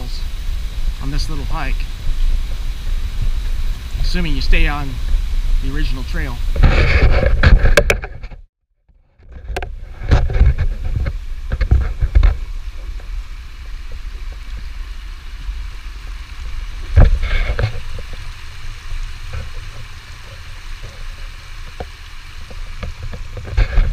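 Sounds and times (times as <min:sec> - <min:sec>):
creek rushing over rocks: 0:00.0 - 0:08.0, 0:09.6 - 0:23.9
camera housing rattling and knocking: 0:06.6 - 0:08.4.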